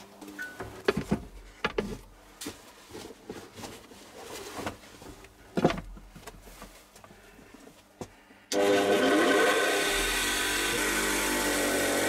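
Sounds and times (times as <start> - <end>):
objects knocking and rustling on shelf: 0.5 - 6.8.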